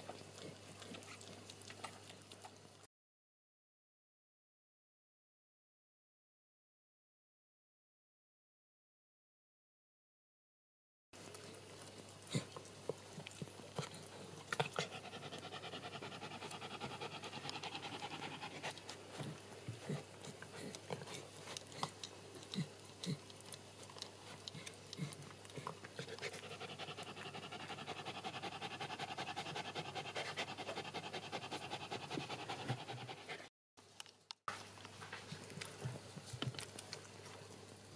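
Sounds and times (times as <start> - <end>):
dog panting rapidly: 13.8 - 22.0, 24.2 - 33.5.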